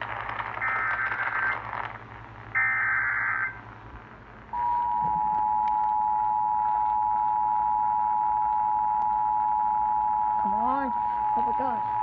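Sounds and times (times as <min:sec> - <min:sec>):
radio hiss: 0:00.0 - 0:03.7.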